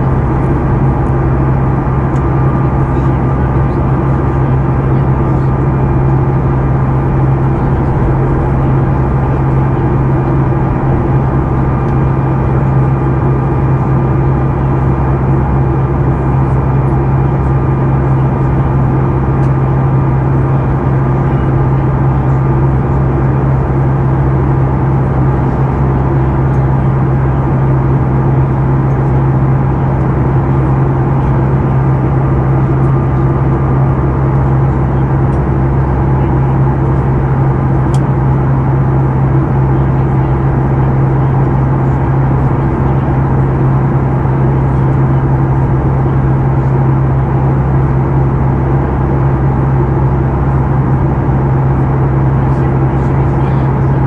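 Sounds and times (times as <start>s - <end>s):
rushing airflow: 0.0s - 14.4s
airplane cabin engine drone: 0.0s - 54.0s.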